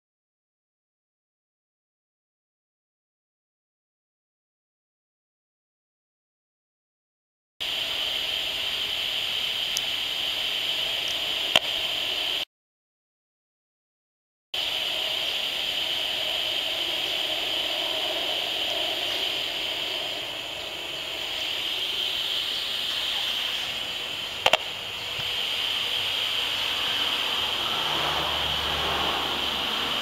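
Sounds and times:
static hiss: 7.6s - 12.5s, 14.6s - 30.0s
constant high tone: 14.6s - 30.0s
sharp click: 24.4s - 24.7s.

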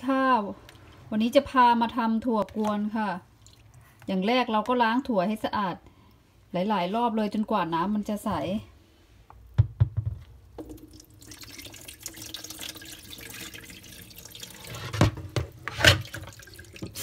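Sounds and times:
water sloshing and pouring: 3.3s - 4.0s, 10.6s - 17.0s.

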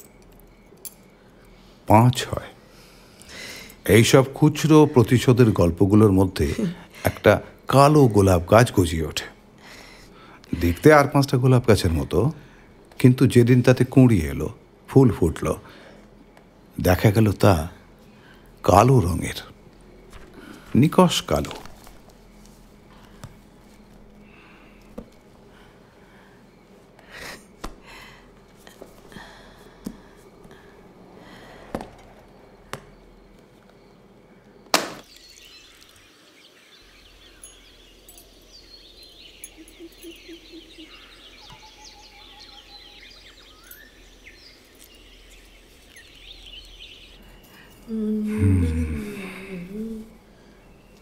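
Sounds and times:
faint high chirps: 33.8s - 51.0s.

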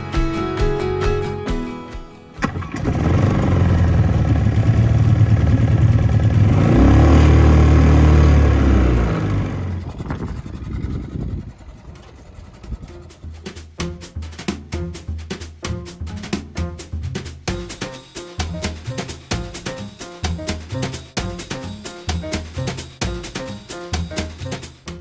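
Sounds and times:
outboard motor running: 2.4s - 13.6s.

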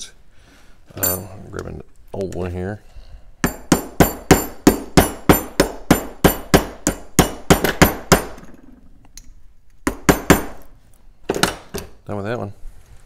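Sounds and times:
hammer striking metal: 3.4s - 8.6s, 9.9s - 10.6s.

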